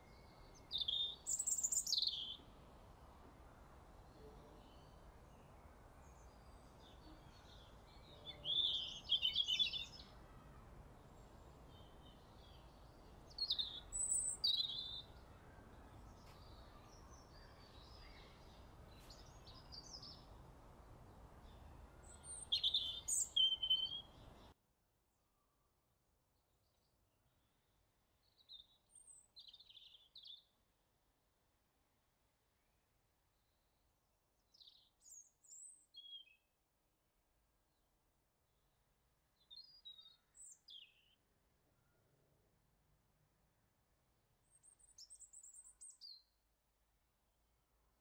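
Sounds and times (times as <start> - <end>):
outdoor background hiss: 0.0 - 24.6
songbird chirping: 0.0 - 24.6, 26.4 - 30.6, 33.3 - 36.6, 38.5 - 42.0, 44.4 - 46.4.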